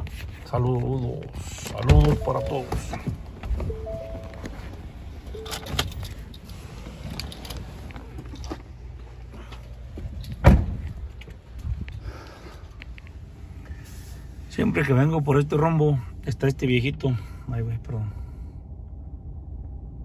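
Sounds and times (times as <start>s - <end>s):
truck door shutting: 1.8s - 4.6s, 10.4s - 10.9s.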